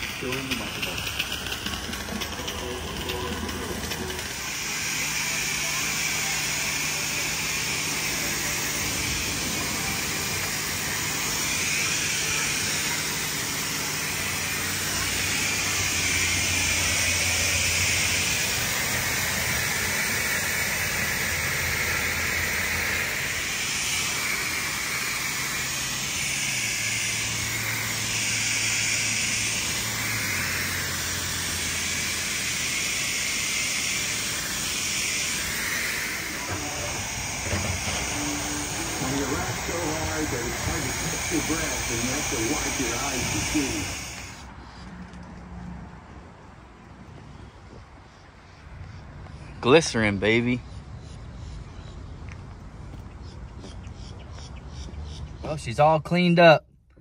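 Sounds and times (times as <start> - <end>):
pressure washer spraying water: 0.0 - 44.6.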